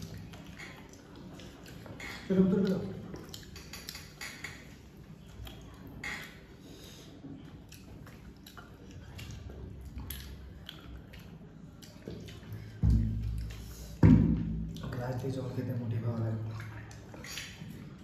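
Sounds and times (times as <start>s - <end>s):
chewing and mouth sounds: 0.0s - 18.0s
fingers clicking against plates: 0.4s - 4.8s.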